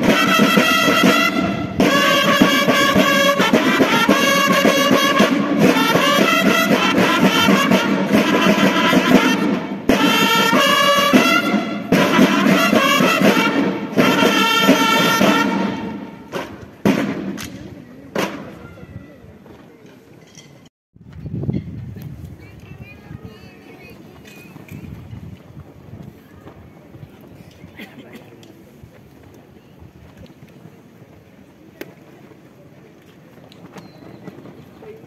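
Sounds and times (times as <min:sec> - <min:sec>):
bugles playing march: 0:00.0 - 0:17.4
snare drums: 0:00.0 - 0:18.6.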